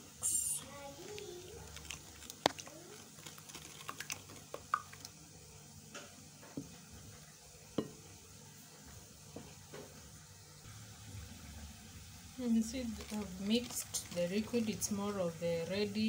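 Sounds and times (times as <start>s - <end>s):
spoon stirring thick marinade: 1.0s - 5.2s.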